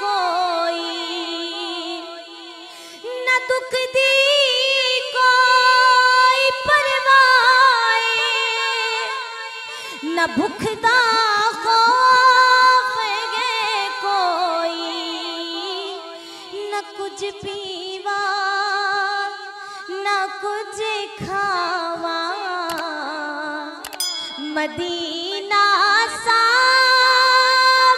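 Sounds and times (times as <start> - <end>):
woman singing into a microphone: 0.0 - 27.9.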